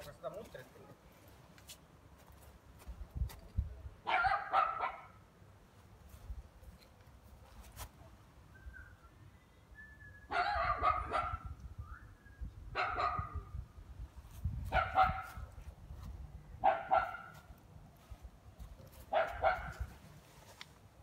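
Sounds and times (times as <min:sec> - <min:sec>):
dog barking: 0:04.0 - 0:05.2, 0:10.3 - 0:11.5, 0:12.8 - 0:13.5, 0:14.7 - 0:15.4, 0:16.6 - 0:17.5, 0:19.1 - 0:19.9.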